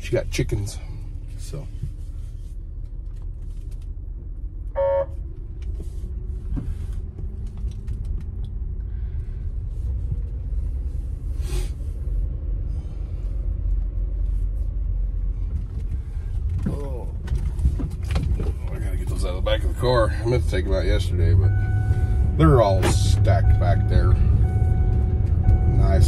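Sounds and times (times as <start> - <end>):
car engine and tyres rumbling: 0.0 - 26.0
short beep: 4.8 - 5.2, 21.5 - 22.2, 23.2 - 26.0.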